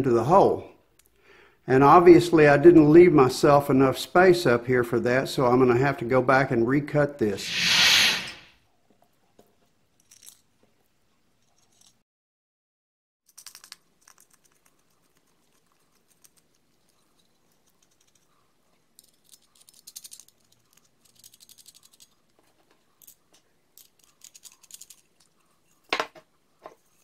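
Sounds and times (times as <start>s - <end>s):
metal parts clicking and rattling: 10.0s - 10.4s, 11.4s - 12.0s, 19.0s - 25.4s.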